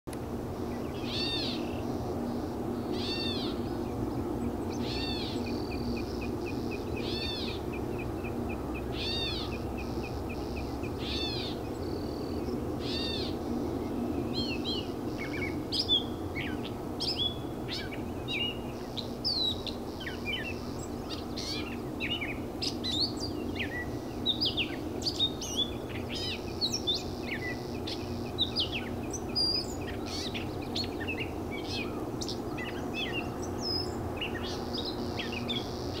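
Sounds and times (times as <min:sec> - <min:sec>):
catbird mewing call: 0:01.0 - 0:01.7, 0:02.9 - 0:03.6, 0:04.8 - 0:05.6, 0:08.9 - 0:09.6.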